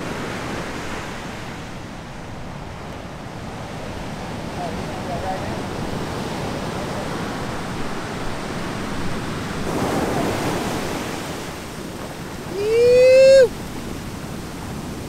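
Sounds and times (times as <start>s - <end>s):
ocean surf washing up: 0.0s - 15.0s
person yelling: 12.5s - 13.5s.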